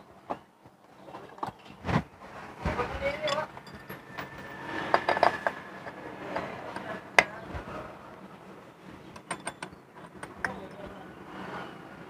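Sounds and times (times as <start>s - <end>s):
metal tool clinking on parts: 3.2s - 5.4s, 9.2s - 11.0s.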